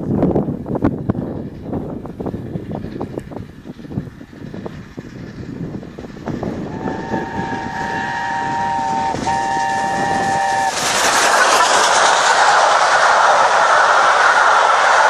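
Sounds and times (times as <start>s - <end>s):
locomotive exhaust beat: 0.0s - 15.0s
wheels rushing on rail: 0.0s - 15.0s
steam locomotive chime whistle: 6.7s - 10.8s.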